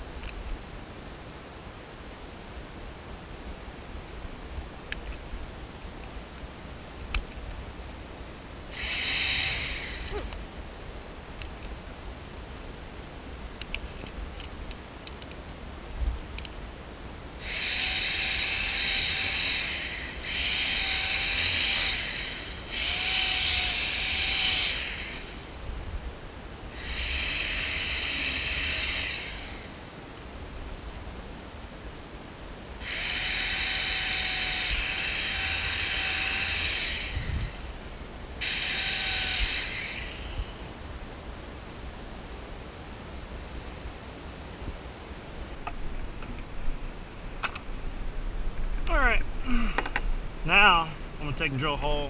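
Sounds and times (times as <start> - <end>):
electric drill whining: 8.7 - 10.6, 17.4 - 25.6, 26.7 - 29.8, 32.8 - 40.6.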